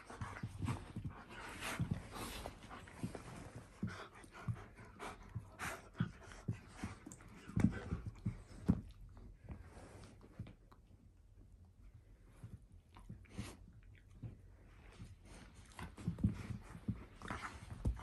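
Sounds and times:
dogs panting and mouthing: 0.0 - 9.1.

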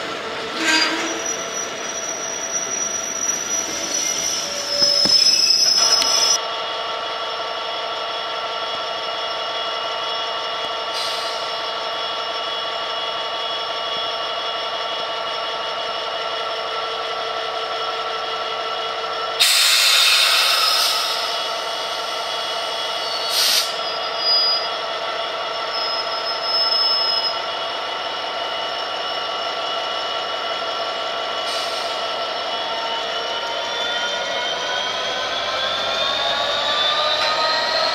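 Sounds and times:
diesel locomotive engine idling: 0.0 - 37.9
air hissing: 23.3 - 23.8.

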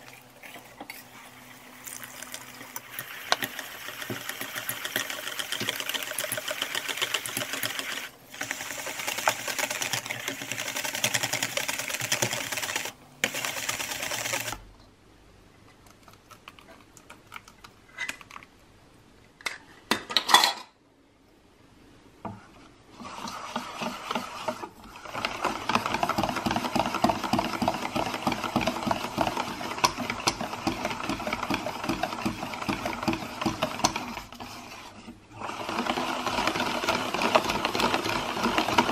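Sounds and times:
whisk rattling in metal bowl: 2.9 - 14.5, 23.2 - 24.6, 25.2 - 34.5, 35.6 - 38.9.

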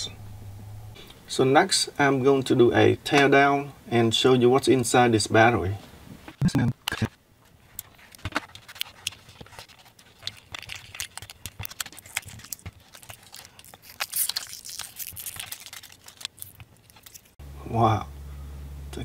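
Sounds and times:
plastic wrap crinkling: 7.7 - 17.4.

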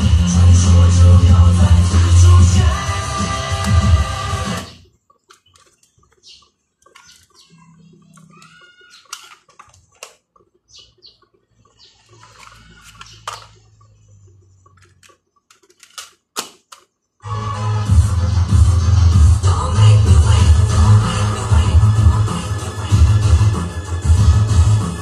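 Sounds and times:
music from cassette player: 0.0 - 15.8, 17.2 - 25.0
faint chirps: 4.6 - 9.3, 10.6 - 15.5
plastic cassette cases clicking: 5.1 - 7.4, 8.2 - 10.5, 12.1 - 13.8, 14.6 - 16.9.

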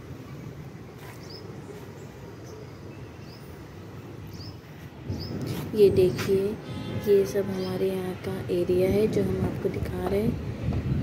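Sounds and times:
wind buffeting microphone: 4.1 - 11.0.

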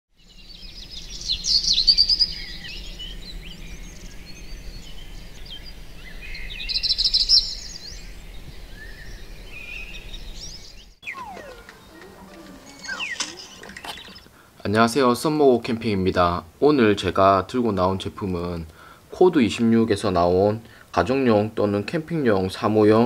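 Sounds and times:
birds chirping and trilling: 0.2 - 14.4.

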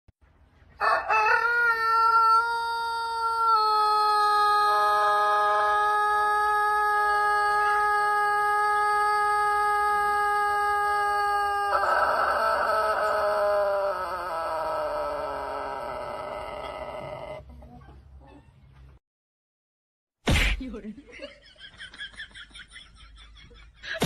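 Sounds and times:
rooster crowing: 0.8 - 17.4.

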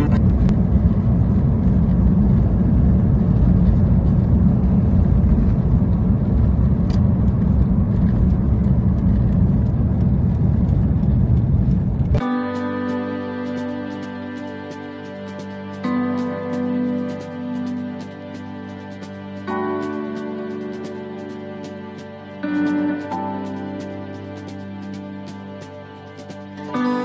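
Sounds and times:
music: 0.0 - 0.5, 12.1 - 27.0
car cabin road rumble: 0.0 - 12.2.

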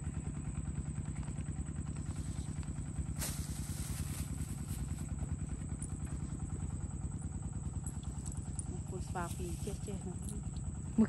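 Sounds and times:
motorcycle engine idling: 0.0 - 11.0
brief rush of hiss: 3.2 - 4.3.

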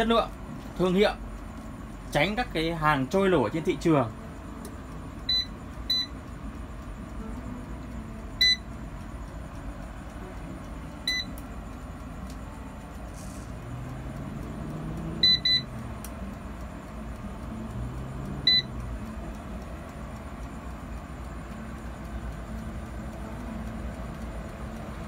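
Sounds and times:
air fryer humming: 0.0 - 25.0
control panel beeps: 3.6 - 13.0, 14.4 - 16.4, 18.4 - 23.5.

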